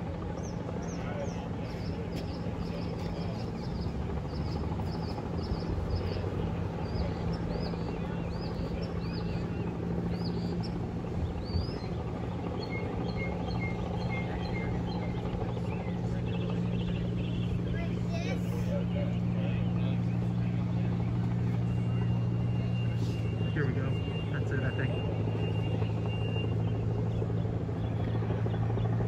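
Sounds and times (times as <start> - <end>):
steady low hum: 0.0 - 29.0
small birds chirping: 0.4 - 21.0.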